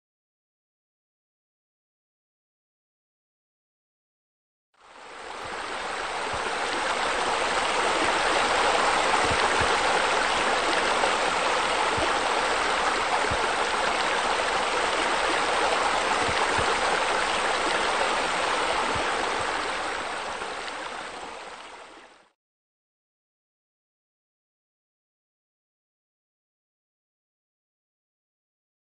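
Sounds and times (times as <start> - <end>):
water falling and splashing: 5.1 - 21.9.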